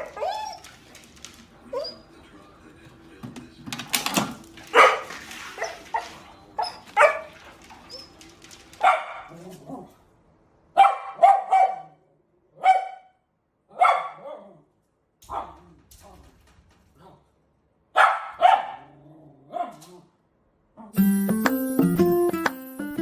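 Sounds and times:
dog barking: 0:04.7 - 0:07.6, 0:08.8 - 0:09.9, 0:10.8 - 0:14.6, 0:15.3 - 0:15.6, 0:17.9 - 0:20.0
small dog barking quickly: 0:07.0 - 0:07.4, 0:08.8 - 0:09.4, 0:10.8 - 0:12.0, 0:12.6 - 0:14.5, 0:18.0 - 0:18.9.

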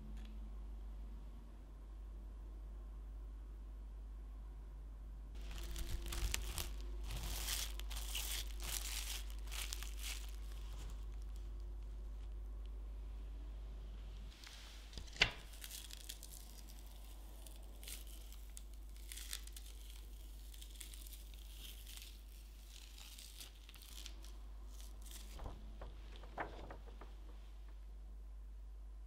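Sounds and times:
plastic collar crinkling: 0:05.4 - 0:12.8, 0:15.0 - 0:27.8.

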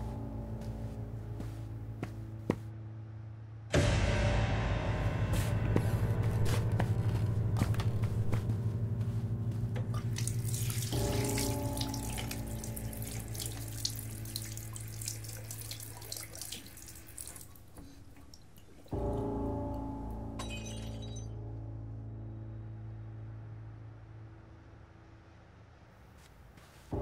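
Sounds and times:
low droning film score: 0:00.0 - 0:27.0
tap water splashing into sink: 0:10.2 - 0:19.0.

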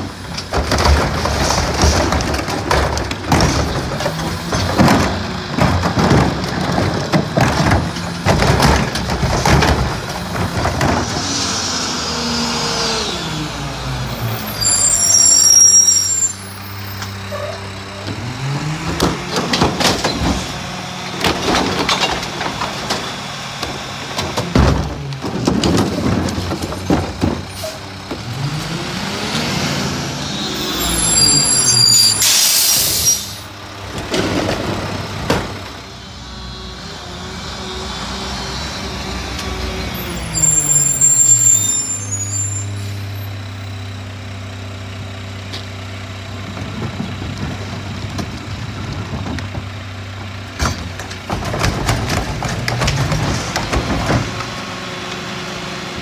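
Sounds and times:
carts and hopper banging: 0:00.0 - 0:13.3, 0:16.6 - 0:36.0, 0:44.9 - 0:56.0
garbage truck diesel engine: 0:00.0 - 0:56.0
air brakes hissing: 0:30.4 - 0:33.5.

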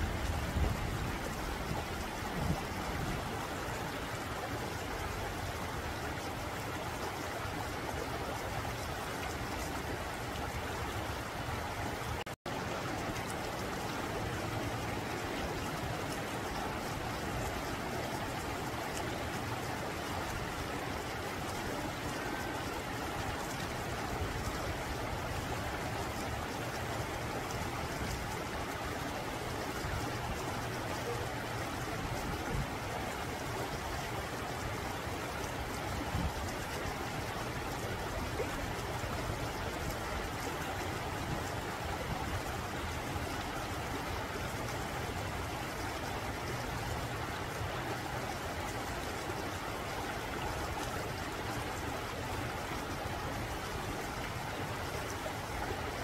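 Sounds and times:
stream rushing over rocks: 0:00.0 - 0:56.0.

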